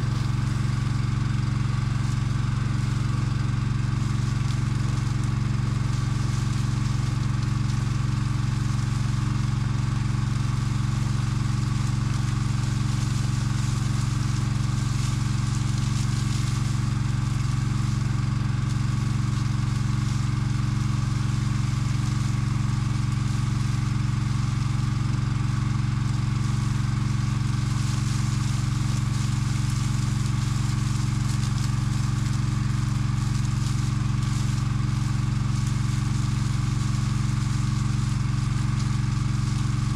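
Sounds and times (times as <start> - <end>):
water spray hissing: 0.0 - 3.5
engine running steadily: 0.0 - 39.9.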